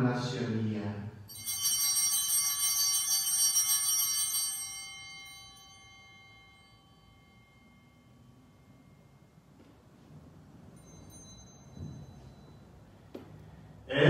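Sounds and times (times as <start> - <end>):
small bells ringing: 1.3 - 13.8.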